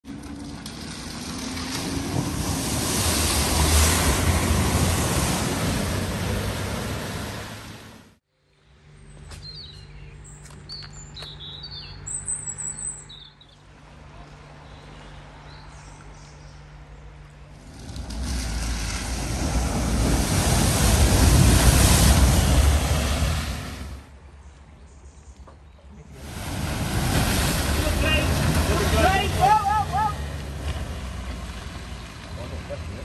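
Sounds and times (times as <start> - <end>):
car engine rumble: 0.0 - 8.3, 15.3 - 24.2, 26.1 - 33.0
heavy water splashing: 0.7 - 8.2, 17.6 - 24.1, 26.2 - 32.9
birds chirping: 8.5 - 17.3.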